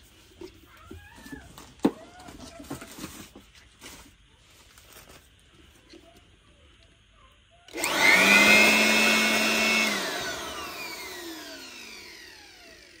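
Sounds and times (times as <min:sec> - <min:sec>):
electric blower whine: 0:07.7 - 0:13.0.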